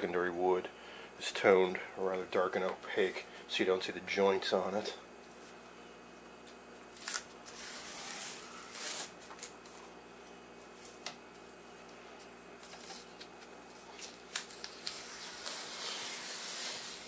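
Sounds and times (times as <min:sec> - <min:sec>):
masking tape rustling and crackling: 0:12.6 - 0:17.0.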